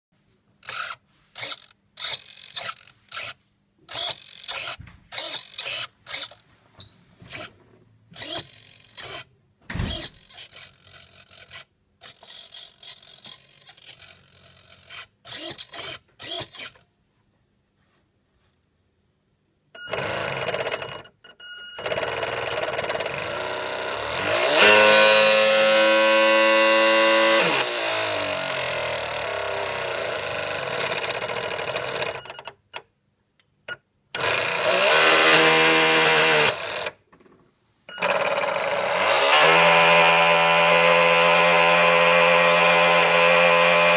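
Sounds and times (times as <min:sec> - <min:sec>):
small electric motor whine: 0:21.8 - 0:32.2, 0:38.0 - 0:43.9.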